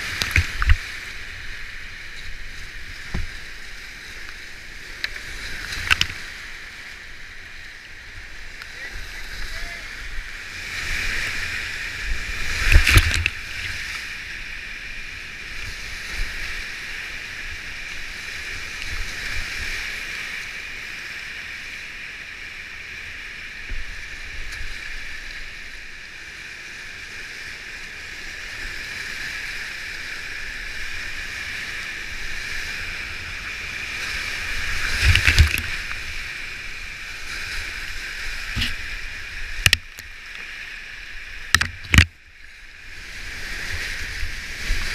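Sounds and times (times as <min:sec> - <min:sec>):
rushing whitewater: 0:00.0 - 0:44.9
kayak splashing through drops: 0:12.4 - 0:13.9, 0:34.6 - 0:36.1, 0:41.4 - 0:42.2.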